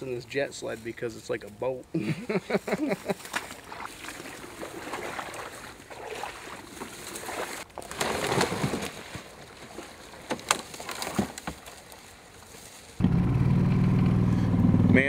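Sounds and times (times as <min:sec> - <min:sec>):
water sloshing: 0:02.4 - 0:13.0
sled scraping over dry leaves: 0:02.6 - 0:13.1
twigs cracking: 0:02.9 - 0:13.0.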